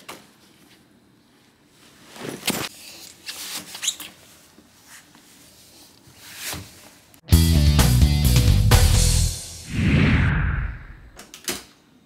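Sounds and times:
handling rustles and knocks: 1.8s - 5.4s.

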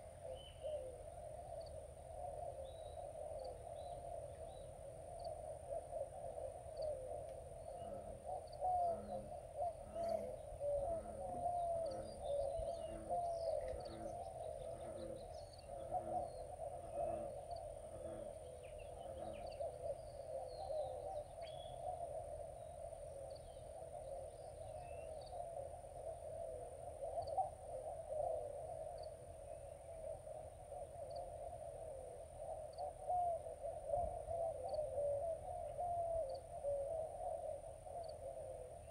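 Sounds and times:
bird cooing: 0.0s - 38.9s.

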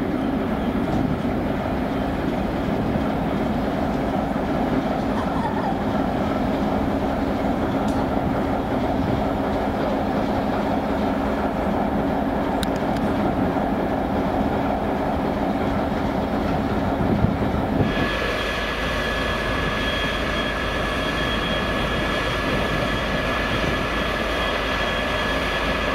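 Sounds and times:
steady high whine: 6.2s - 25.9s.

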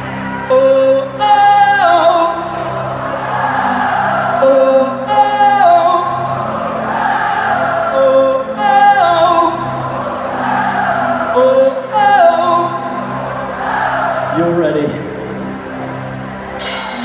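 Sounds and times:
crowd singing chorus: 0.0s - 17.0s
man singing into a microphone: 0.4s - 2.8s, 4.4s - 6.4s, 7.9s - 9.9s, 11.3s - 13.0s.

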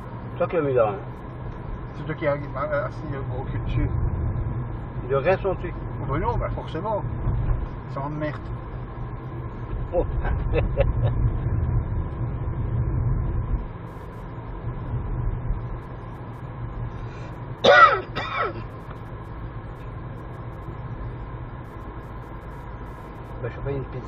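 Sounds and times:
car engine and tyres rumbling: 0.0s - 24.0s
person coughing: 17.7s - 18.7s.

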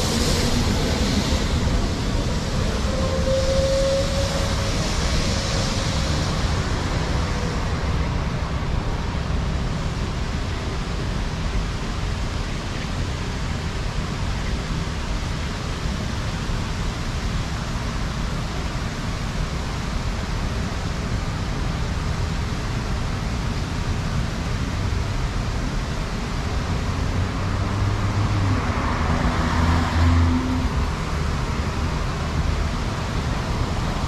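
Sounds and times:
city traffic on wet street: 0.0s - 34.0s
vehicle humming: 0.0s - 34.0s.

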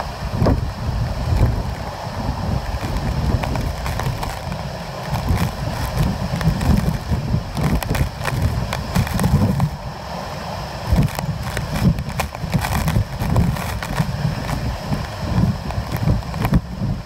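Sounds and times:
wind buffeting microphone: 0.0s - 17.0s
sharp clicks and rattles: 2.7s - 9.8s, 10.9s - 16.6s.

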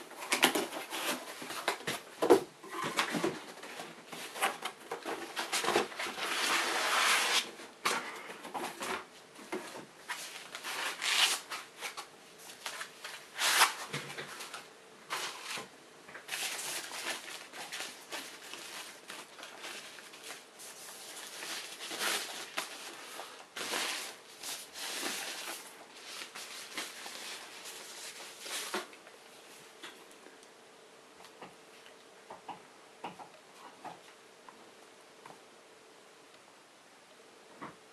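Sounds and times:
cardboard and foam packaging rustling: 0.0s - 30.0s
plastic wrapping sleeve crinkling: 16.3s - 29.0s.

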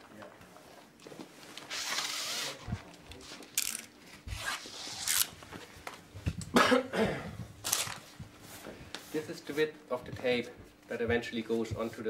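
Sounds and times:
tape ripping off roll: 1.6s - 2.6s, 3.5s - 5.4s, 7.6s - 8.0s.

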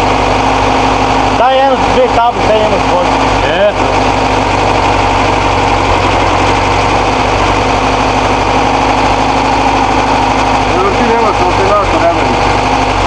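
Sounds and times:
air-cooled engine idling: 0.0s - 13.0s.

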